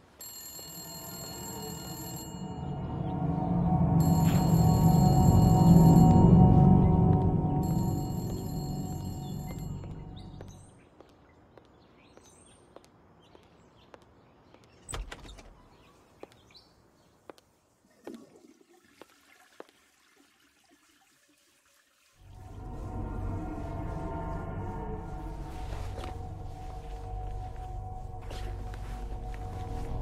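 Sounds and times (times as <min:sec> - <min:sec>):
music: 0:01.1 - 0:10.6, 0:22.2 - 0:30.0
birds chirping: 0:05.9 - 0:17.3
footsteps on pavement: 0:07.1 - 0:14.8, 0:16.1 - 0:16.6, 0:25.9 - 0:30.0.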